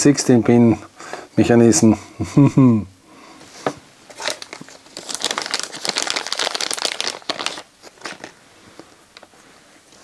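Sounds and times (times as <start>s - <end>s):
plastic crinkling and clicking: 4.1s - 9.3s.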